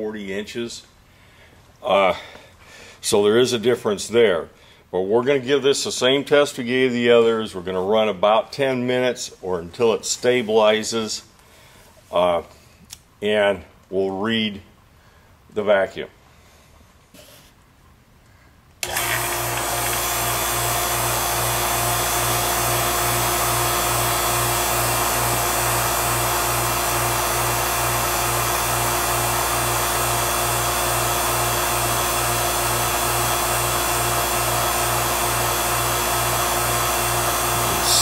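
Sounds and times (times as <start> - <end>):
vacuum pump pulsing hum: 18.8 - 38.0.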